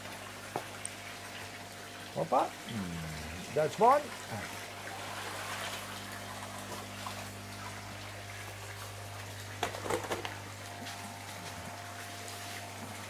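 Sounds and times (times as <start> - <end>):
water pouring from pipe: 0.0 - 13.0
steady low hum: 1.7 - 13.0
water splashing: 2.9 - 13.0.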